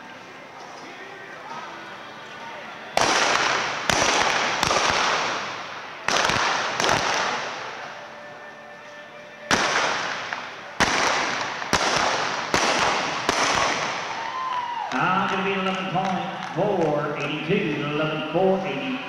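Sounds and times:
revolver gunshots ringing: 3.0s - 7.9s, 9.5s - 14.2s.

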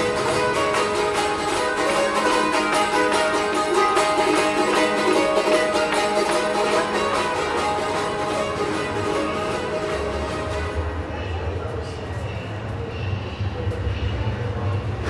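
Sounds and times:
music with pitched notes: 0.0s - 11.1s.

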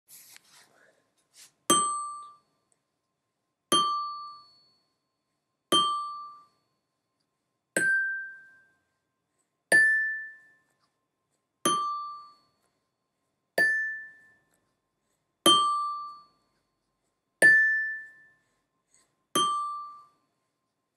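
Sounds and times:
glockenspiel notes: 1.7s - 2.4s, 7.8s - 8.7s, 9.7s - 10.7s, 11.7s - 12.5s, 13.6s - 14.4s, 17.4s - 18.4s, 19.4s - 20.2s.

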